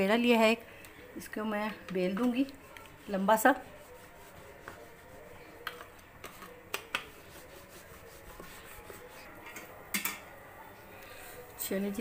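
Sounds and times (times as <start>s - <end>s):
rolling pin rubbing on dough: 2.5s - 9.4s.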